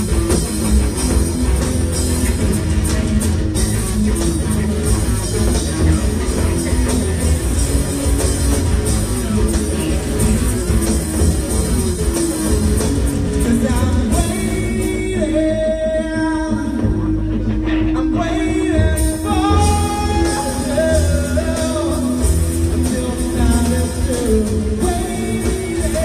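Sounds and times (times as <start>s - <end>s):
drums: 0.0s - 26.0s
electric guitars: 0.0s - 26.0s
person singing: 13.3s - 26.0s.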